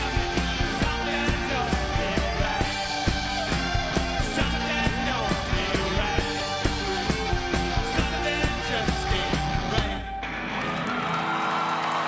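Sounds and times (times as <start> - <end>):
drums beating: 0.0 - 10.2
person singing: 0.0 - 10.2
sustained guitar chords: 0.0 - 10.9.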